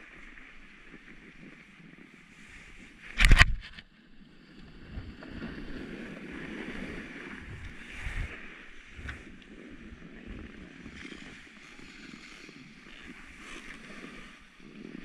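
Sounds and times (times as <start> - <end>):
snowboard scraping over snow: 5.2 - 15.0.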